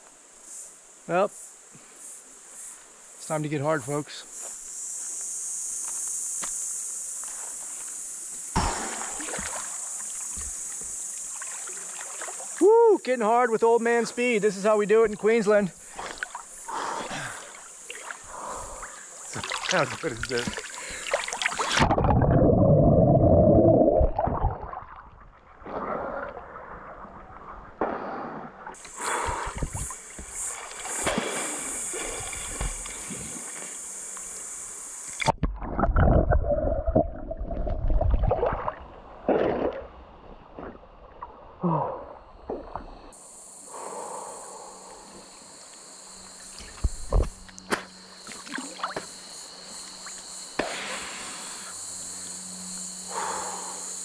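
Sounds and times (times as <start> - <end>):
high insect drone: 0.0 - 24.8, 27.9 - 35.4, 37.6 - 54.0
water splashing and gurgling: 8.6 - 12.6, 15.1 - 33.8, 35.1 - 43.0, 48.2 - 49.1.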